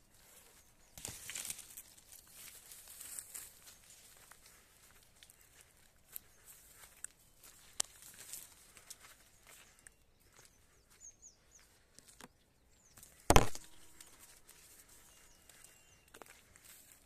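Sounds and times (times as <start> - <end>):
footsteps through dry vegetation: 0.0 - 17.0
small birds chirping: 0.0 - 17.0
dry vegetation snapping: 1.0 - 3.2, 13.0 - 14.6.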